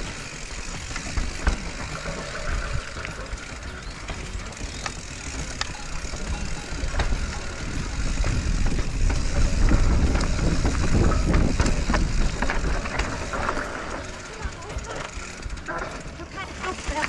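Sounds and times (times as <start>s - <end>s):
bike clicks and rattles: 0.0s - 17.0s
bike tyres rumbling on dirt trail: 0.0s - 17.0s
wind on microphone: 6.9s - 13.6s.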